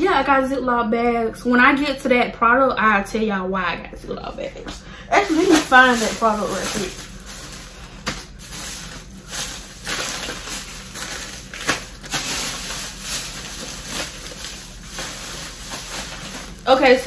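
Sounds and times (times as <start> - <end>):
plastic bag rustling: 5.1 - 17.0.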